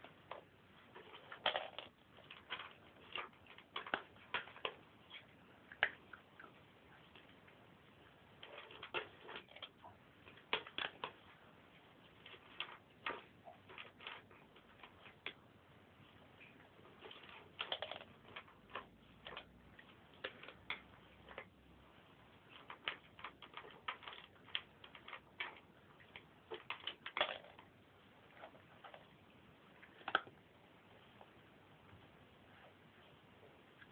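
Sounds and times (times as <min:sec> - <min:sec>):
cats chewing food: 0:00.1 - 0:29.1.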